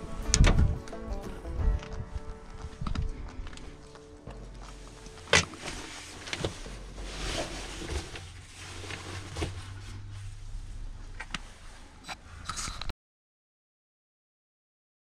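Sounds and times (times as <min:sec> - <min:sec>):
low steady hum: 0:00.0 - 0:12.9
fabric bag rustling: 0:03.6 - 0:12.0.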